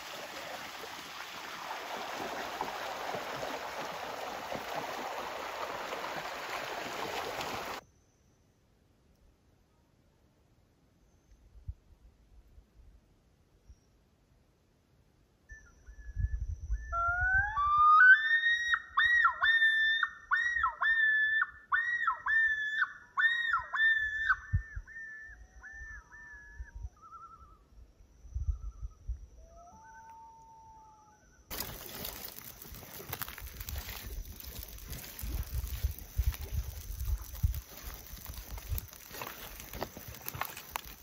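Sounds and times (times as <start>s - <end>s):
water noise: 0.0s - 7.8s, 31.5s - 41.0s
wind: 0.0s - 41.0s.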